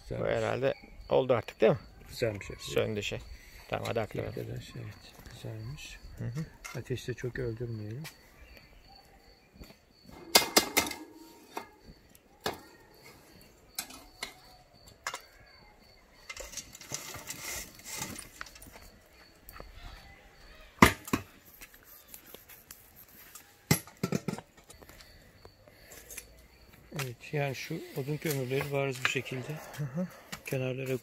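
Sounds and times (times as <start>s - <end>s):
metal chimney starter clanking: 10.1s - 11.8s
charcoal tumbling into grill: 10.1s - 14.4s, 16.3s - 18.8s, 23.7s - 24.7s.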